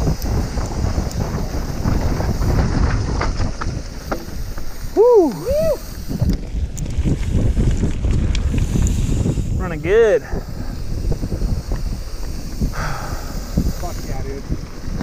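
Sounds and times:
tyres rumbling on dirt and gravel: 0:00.0 - 0:15.0
wind buffeting microphone: 0:00.0 - 0:15.0
rider whooping: 0:04.7 - 0:06.2.

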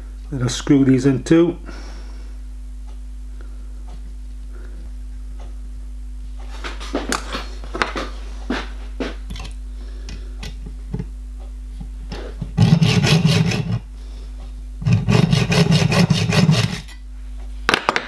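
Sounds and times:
hacksaw rasping through screw: 0:12.6 - 0:13.8, 0:14.8 - 0:17.0.

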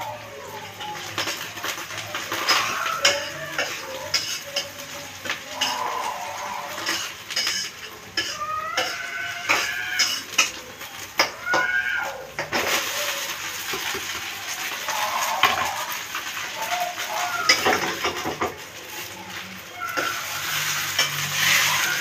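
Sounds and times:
metal spatula scraping wok: 0:00.6 - 0:10.6, 0:19.3 - 0:22.0.

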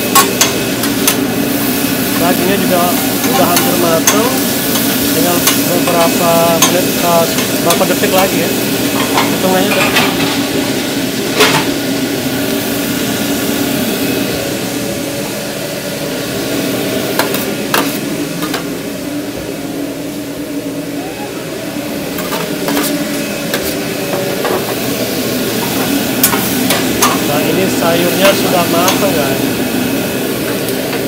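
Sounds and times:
food sizzling on a grill: 0:00.0 - 0:14.8, 0:21.9 - 0:31.0
utensils tapping metal: 0:03.2 - 0:08.4, 0:28.2 - 0:29.2.

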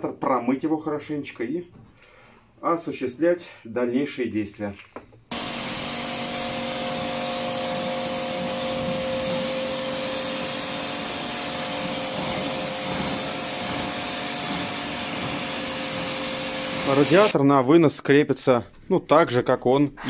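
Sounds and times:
pressure washer spraying water: 0:05.3 - 0:17.3
pump whine: 0:05.3 - 0:17.3.

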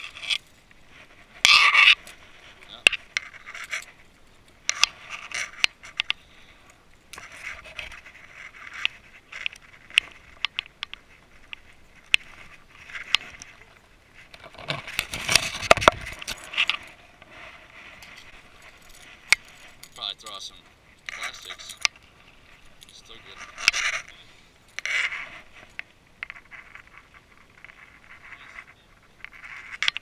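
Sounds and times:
scraping and rustling: 0:00.0 - 0:30.0
fishing gear clicks: 0:14.2 - 0:16.9, 0:18.0 - 0:28.4.

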